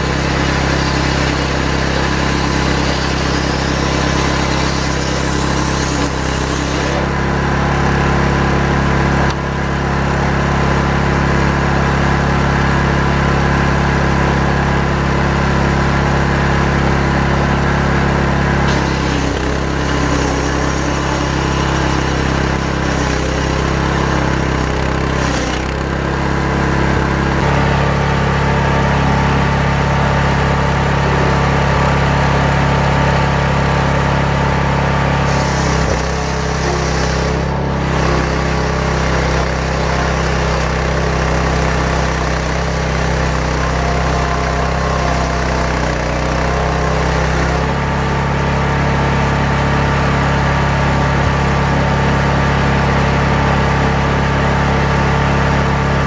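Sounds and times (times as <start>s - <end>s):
power saw ripping timber: 0.0s - 56.0s.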